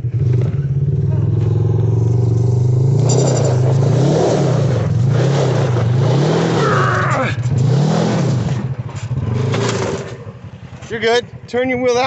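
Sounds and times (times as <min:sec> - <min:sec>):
engine revving: 0:00.0 - 0:11.3.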